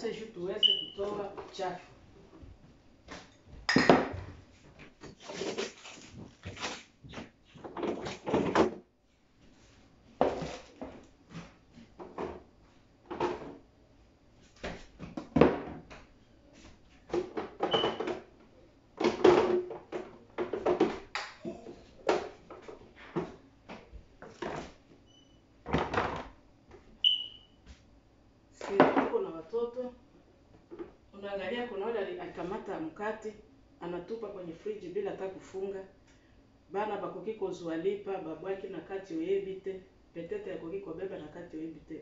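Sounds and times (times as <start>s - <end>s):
short high beeps: 0.6s - 1.0s, 27.0s - 27.5s
food containers and drawers clattering: 7.6s - 8.8s, 10.2s - 11.0s, 19.0s - 21.1s.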